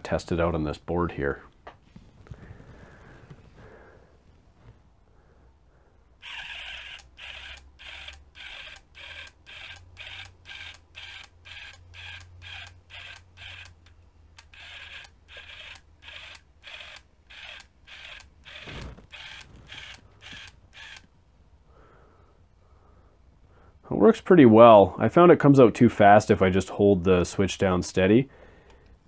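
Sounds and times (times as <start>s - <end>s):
geared motor whining in bursts: 6.2s - 21.1s.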